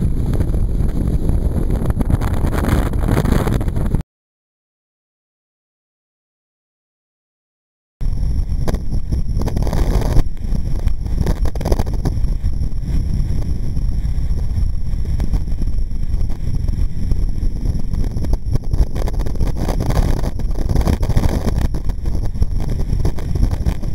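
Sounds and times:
wind buffeting microphone: 0.0 - 4.0, 8.0 - 23.9.

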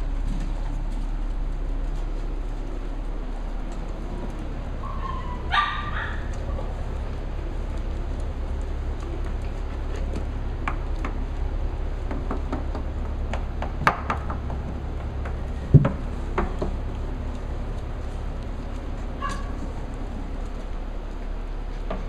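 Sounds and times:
steady low hum: 0.0 - 22.0
puppy claws clicking on wood floor: 0.2 - 22.0.

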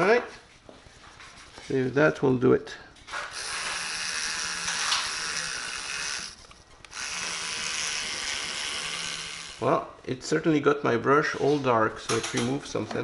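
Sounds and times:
electric toothbrush buzzing: 3.1 - 9.8.

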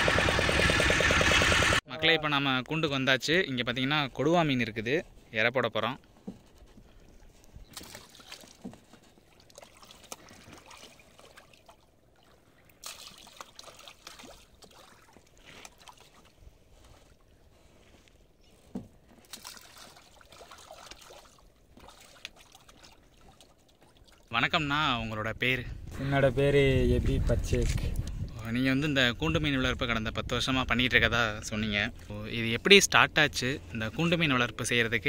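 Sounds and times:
fish splashing at water surface: 7.7 - 16.4, 19.2 - 24.3.

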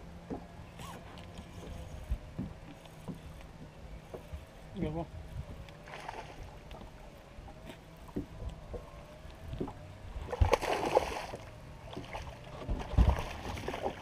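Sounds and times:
knocks on boat deck: 2.3 - 3.2
fish splashing at water surface: 10.3 - 14.0.

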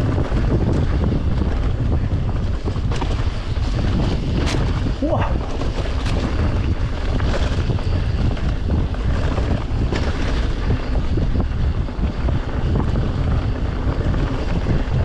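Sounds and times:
knocks and rattles from bike: 0.0 - 15.0
low rumble of bike on trail: 0.0 - 15.0
wind buffeting microphone: 0.0 - 15.0.

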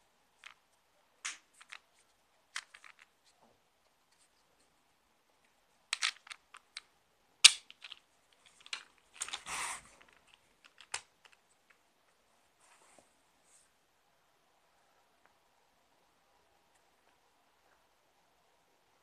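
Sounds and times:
plastic clicks and rattles: 2.5 - 3.1, 5.9 - 6.9, 7.5 - 11.8.

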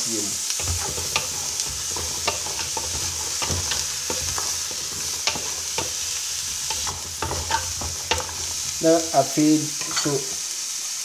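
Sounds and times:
vegetables sizzling in hot oil: 0.0 - 11.0
spoon scraping and tapping pot: 0.6 - 8.7.

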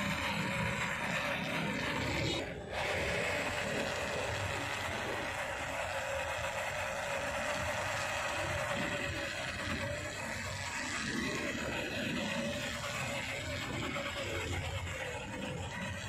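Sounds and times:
rc car motor whining: 0.0 - 16.0.

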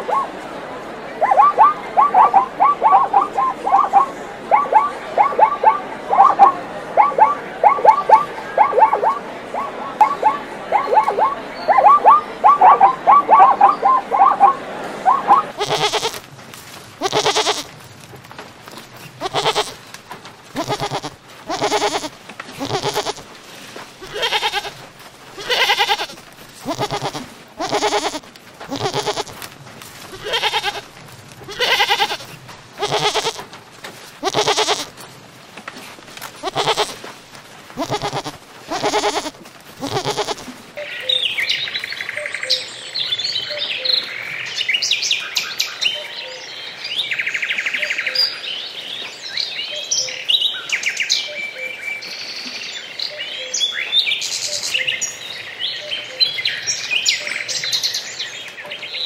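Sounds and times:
goats bleating: 15.5 - 16.3, 17.0 - 17.7, 19.2 - 19.8, 20.5 - 23.3, 24.0 - 29.4, 30.1 - 30.9, 31.5 - 33.5, 34.2 - 35.0, 36.4 - 37.1, 37.8 - 40.5.

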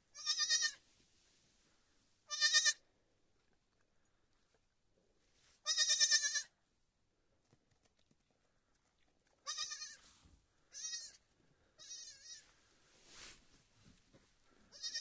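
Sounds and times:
lamb bleating: 0.1 - 0.8, 2.3 - 2.8, 5.6 - 6.5, 9.4 - 10.0, 10.7 - 11.2, 11.8 - 12.5, 14.7 - 15.0.

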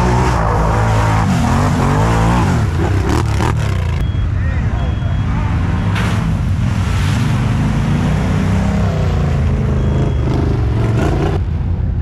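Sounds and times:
atv engine revving hard: 0.0 - 4.0.

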